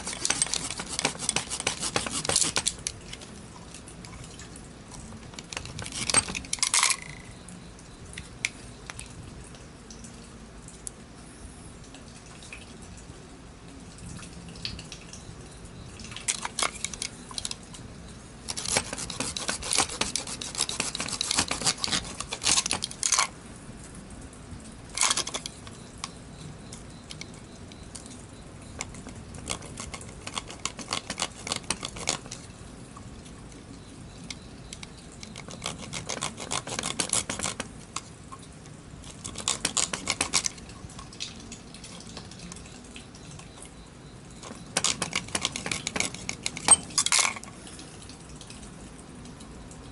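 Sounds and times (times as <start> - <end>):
screwdriver scraping and clicking: 0.0 - 3.0, 5.4 - 7.2, 18.5 - 23.3, 25.0 - 25.8, 28.8 - 32.4, 34.3 - 37.7, 39.1 - 40.6, 44.4 - 47.4.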